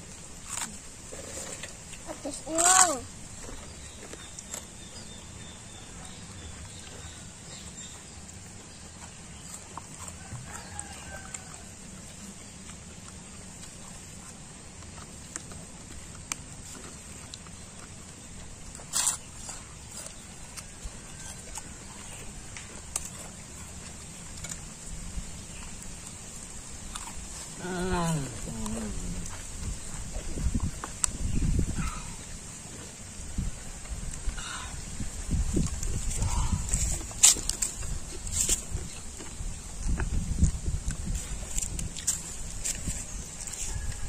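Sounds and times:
steady low rumble: 22.2 - 43.5.

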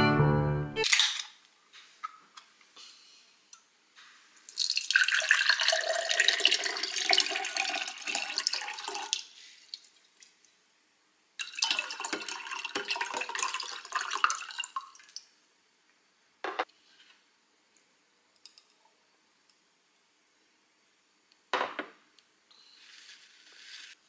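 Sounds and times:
drink pouring into a glass: 4.5 - 9.2, 11.4 - 15.2.

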